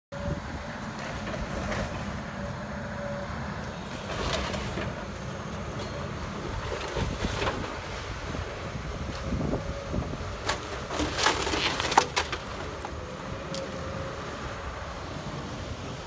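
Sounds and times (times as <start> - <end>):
excavator engine running: 0.2 - 16.0
breaking timber crashes: 10.9 - 12.9.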